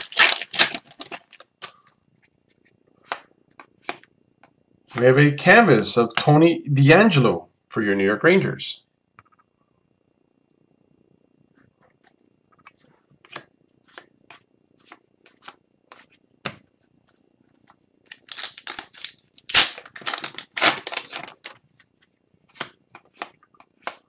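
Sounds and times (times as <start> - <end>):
foil wrapper crinkling: 0.0 - 1.8, 18.1 - 21.6.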